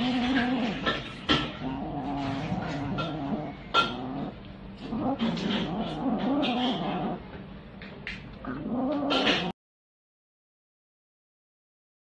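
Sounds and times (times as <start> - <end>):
kitten growling: 0.0 - 7.3, 8.4 - 9.6.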